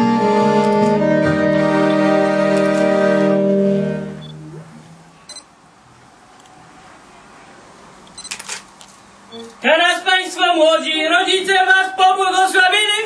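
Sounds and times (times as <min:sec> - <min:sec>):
band music led by violin: 0:00.0 - 0:04.2.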